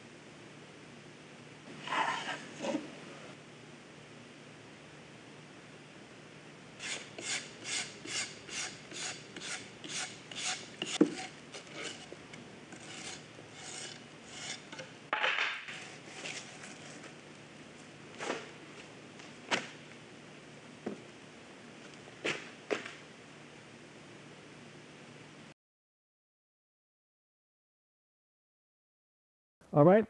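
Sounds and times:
steel brush scrubbing concrete: 6.8s - 12.1s, 12.8s - 14.8s.

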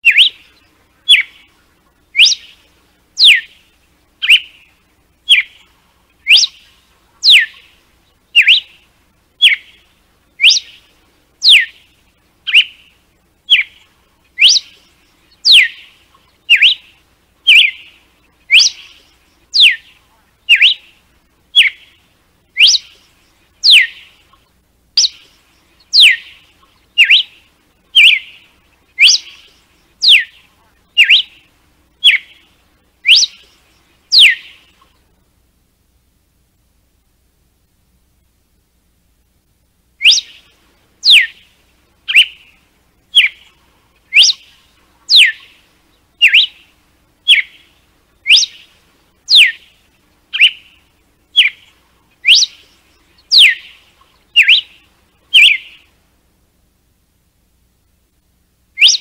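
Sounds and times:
bird singing sharp whistles: 0.0s - 1.5s, 2.2s - 2.6s, 3.2s - 3.6s, 4.2s - 4.7s, 5.3s - 5.6s, 6.2s - 7.7s, 8.3s - 8.8s, 9.4s - 9.8s, 10.4s - 11.8s, 12.5s - 12.9s, 13.5s - 13.8s, 14.4s - 19.9s, 20.5s - 20.9s, 21.6s - 21.9s, 22.6s - 24.1s, 25.0s - 26.4s, 27.0s - 28.4s, 29.0s - 30.4s, 31.0s - 31.4s, 32.0s - 32.4s, 33.0s - 34.6s, 40.0s - 41.5s, 42.1s - 42.5s, 43.1s - 43.5s, 44.1s - 44.5s, 45.1s - 45.5s, 46.2s - 46.6s, 47.3s - 47.6s, 48.2s - 48.7s, 49.3s - 49.6s, 50.3s - 50.8s, 51.4s - 53.8s, 54.4s - 55.9s, 58.8s - 59.0s.

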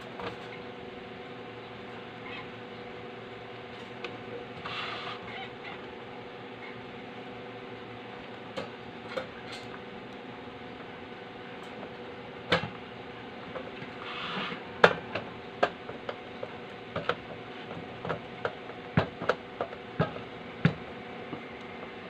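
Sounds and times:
short metal scrape: 4.6s - 5.2s, 14.0s - 14.6s.

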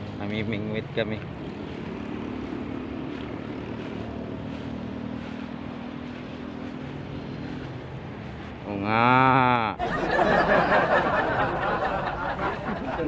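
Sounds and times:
engine drone: 0.0s - 9.7s.

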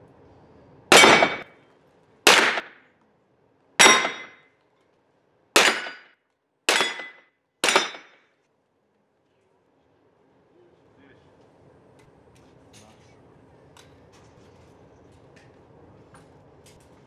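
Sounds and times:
pistol shots echoing indoors: 0.9s - 1.5s, 2.3s - 2.8s, 5.6s - 6.1s, 6.7s - 8.1s.

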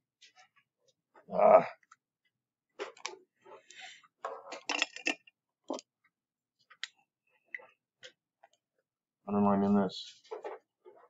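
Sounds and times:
knocks and scrapes: 2.7s - 5.9s, 10.1s - 11.0s.

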